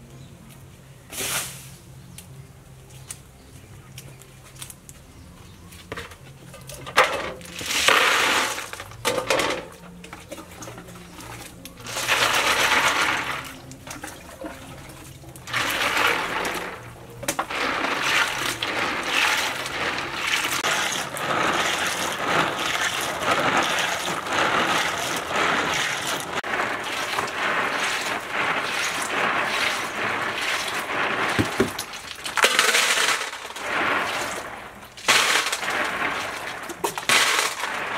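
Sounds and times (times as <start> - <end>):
water sloshing and splashing: 5.9 - 37.9
snail shells clattering: 6.1 - 13.8, 15.2 - 37.9
hand scrubbing snails: 11.5 - 37.9.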